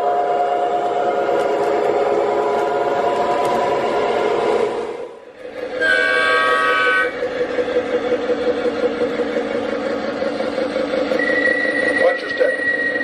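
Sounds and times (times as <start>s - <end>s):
model train engine hum: 0.0s - 13.0s
model train horn chord: 5.7s - 7.2s.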